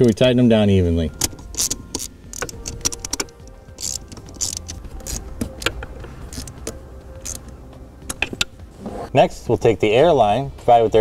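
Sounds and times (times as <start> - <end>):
wrench ratcheting: 1.2 - 7.5
metal clicks: 1.2 - 8.6.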